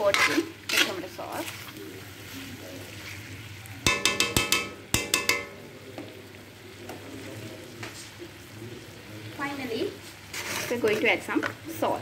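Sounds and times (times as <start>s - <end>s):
metal spoon knocking on wok: 3.8s - 5.7s.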